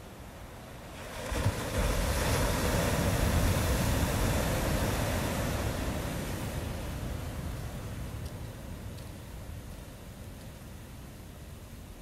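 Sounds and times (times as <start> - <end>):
ocean wave breaking: 0.9 - 8.0.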